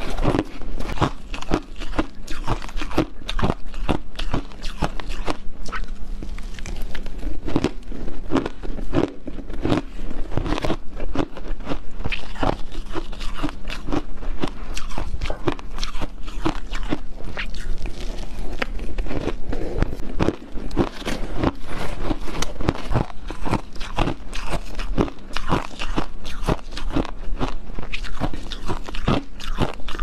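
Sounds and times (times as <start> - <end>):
ice crunching between teeth: 0.0 - 30.0.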